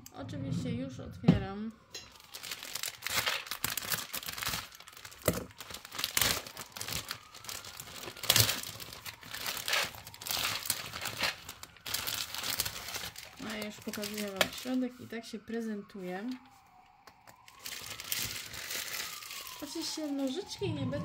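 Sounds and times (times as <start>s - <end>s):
plastic foil crinkling: 2.1s - 15.0s, 17.4s - 20.7s.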